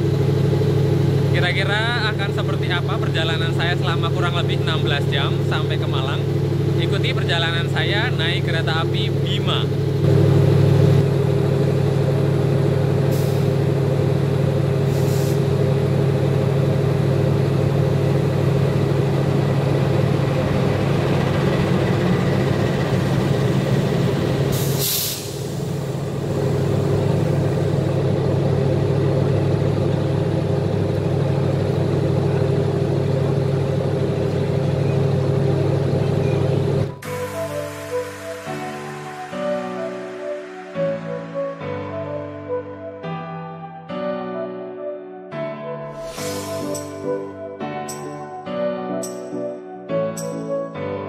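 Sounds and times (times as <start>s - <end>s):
locomotive engine idling: 0.0s - 37.1s
compressed air hissing: 13.1s - 13.6s, 14.8s - 15.5s, 24.5s - 26.8s, 46.0s - 47.1s.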